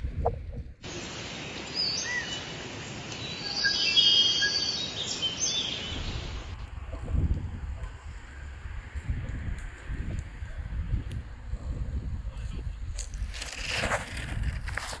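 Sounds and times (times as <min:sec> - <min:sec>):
wind buffeting microphone: 0:00.0 - 0:00.8, 0:05.9 - 0:14.8
jungle hiss: 0:00.8 - 0:09.0
birds chirping and whistling: 0:01.6 - 0:02.5, 0:03.2 - 0:06.6.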